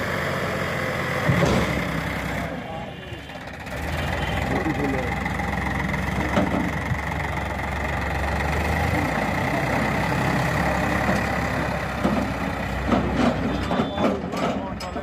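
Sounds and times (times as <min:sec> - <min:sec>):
tractor diesel engine running: 0:00.0 - 0:15.0.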